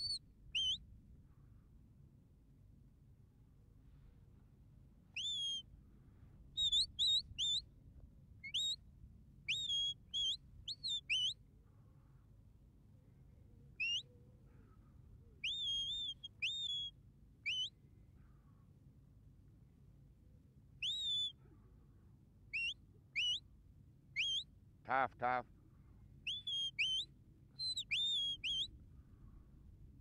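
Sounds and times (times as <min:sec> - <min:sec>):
shepherd's whistle notes: 0:00.0 - 0:00.8, 0:05.2 - 0:05.6, 0:08.4 - 0:08.8, 0:09.5 - 0:11.4, 0:13.8 - 0:14.1, 0:15.4 - 0:16.9, 0:17.5 - 0:17.7, 0:20.8 - 0:21.4, 0:22.5 - 0:23.4, 0:24.2 - 0:24.5, 0:26.2 - 0:28.7.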